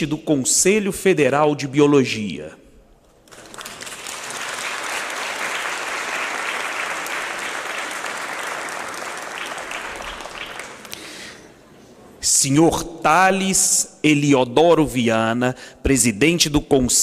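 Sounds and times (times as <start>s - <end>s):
audience applauding: 3.2s - 11.1s.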